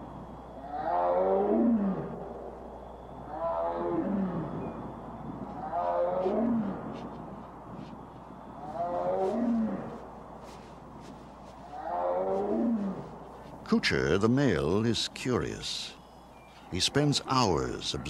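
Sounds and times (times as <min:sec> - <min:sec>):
tiger roars through loudspeaker: 0:03.3 - 0:04.6, 0:05.6 - 0:06.8.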